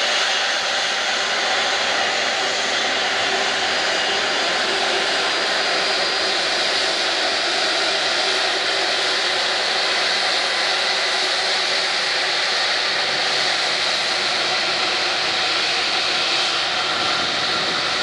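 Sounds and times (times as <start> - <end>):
jet engines running: 0.0 - 18.0.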